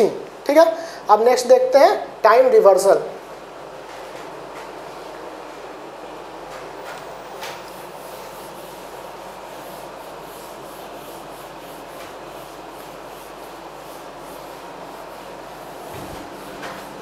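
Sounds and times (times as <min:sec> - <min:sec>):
steady background hiss: 0:00.0 - 0:17.0
whiteboard duster rubbing: 0:07.5 - 0:17.0.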